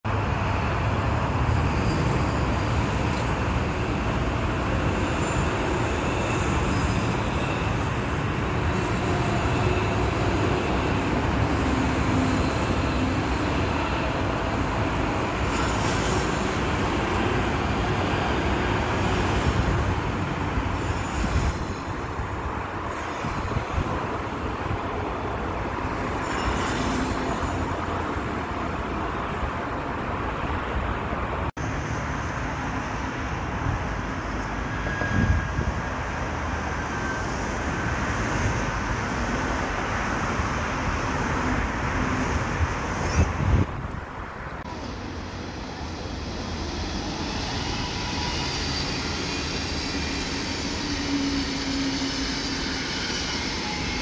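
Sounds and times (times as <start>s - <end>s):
train wheels rumbling on rail: 0.0s - 54.0s
high wheel squeals: 1.5s - 24.3s, 25.9s - 28.1s, 34.2s - 38.9s, 46.7s - 54.0s.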